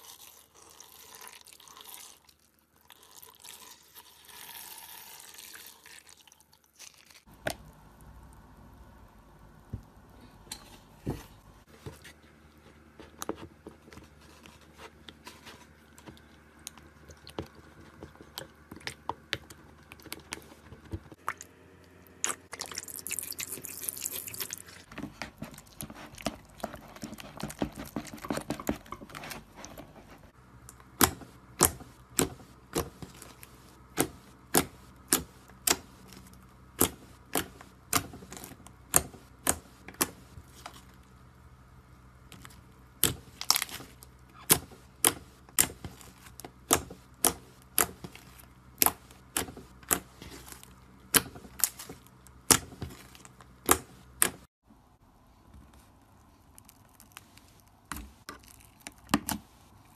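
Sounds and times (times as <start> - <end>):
slime squishing: 11.0 - 41.2, 42.2 - 54.5.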